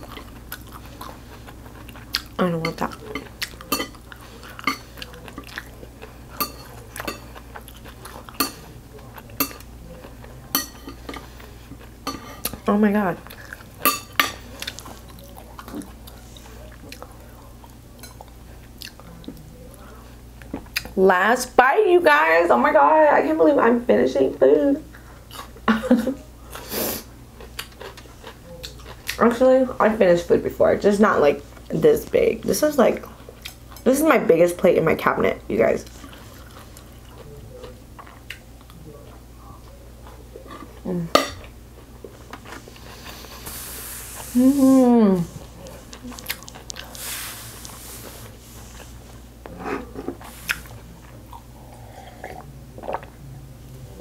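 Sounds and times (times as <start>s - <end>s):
person chewing food: 0.0s - 21.0s, 26.4s - 29.2s, 35.8s - 53.2s.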